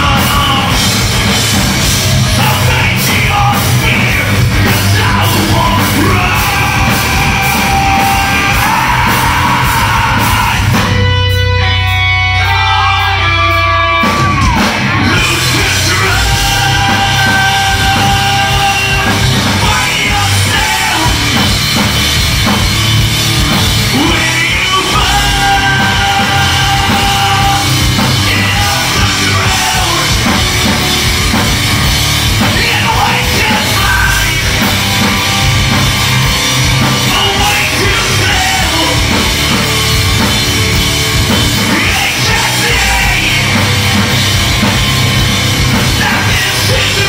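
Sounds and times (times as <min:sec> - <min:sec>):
bass guitar: 0:00.0 - 0:47.0
distorted electric guitars: 0:00.0 - 0:47.0
pounding drum kit: 0:00.0 - 0:47.0
singer yelling: 0:02.3 - 0:11.1, 0:11.7 - 0:21.5, 0:23.8 - 0:31.4, 0:32.3 - 0:35.5, 0:36.1 - 0:39.4, 0:41.5 - 0:43.9, 0:45.8 - 0:47.0.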